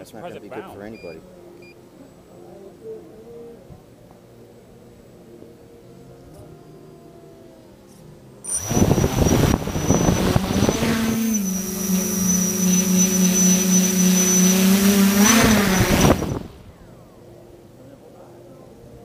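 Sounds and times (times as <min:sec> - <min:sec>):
drone motors and propellers buzzing: 0:05.5 - 0:17.0.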